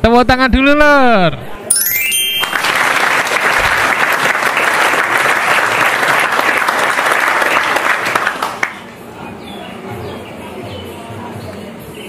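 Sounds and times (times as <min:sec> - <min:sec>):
hands clapping: 0:01.9 - 0:08.8.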